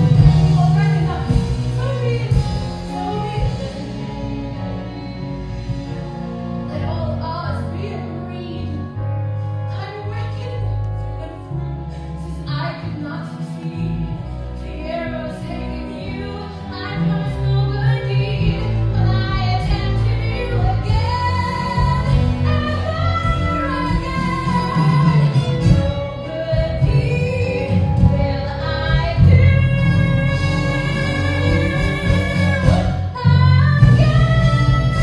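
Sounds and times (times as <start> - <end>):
woman singing: 0.0 - 5.4, 6.7 - 11.6, 12.2 - 35.0
orchestral accompaniment: 0.0 - 35.0.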